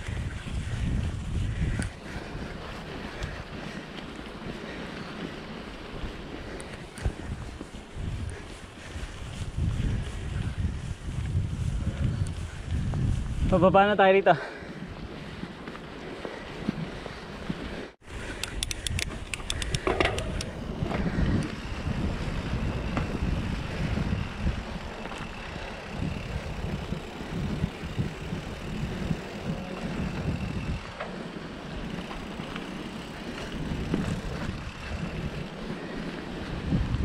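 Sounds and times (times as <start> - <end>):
tyres rolling over dirt trail: 0.0 - 37.0
wind buffeting microphone: 0.0 - 37.0
quick run of clicks: 18.1 - 21.6.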